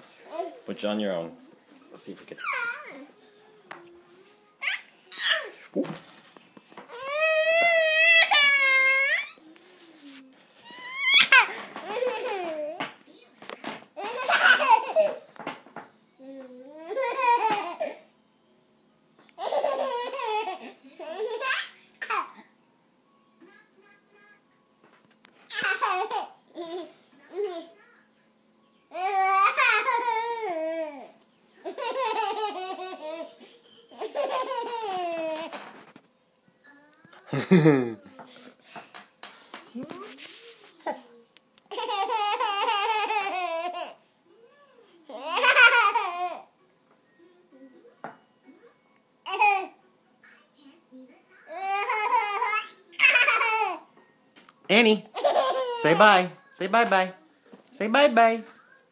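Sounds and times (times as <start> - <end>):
baby laughing: 14.0 - 15.3, 31.6 - 35.6, 41.7 - 44.0, 51.6 - 53.8, 55.1 - 56.1.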